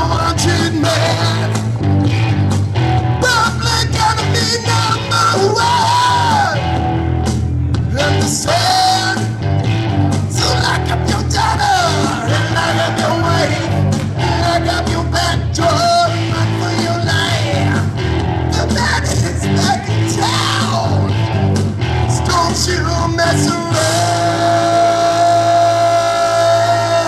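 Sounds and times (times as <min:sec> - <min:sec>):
person singing into a microphone: 0:00.0 - 0:01.6, 0:03.2 - 0:06.6, 0:07.9 - 0:09.4, 0:10.3 - 0:17.9, 0:18.5 - 0:21.1, 0:22.1 - 0:27.0
rock backing track: 0:00.0 - 0:27.0.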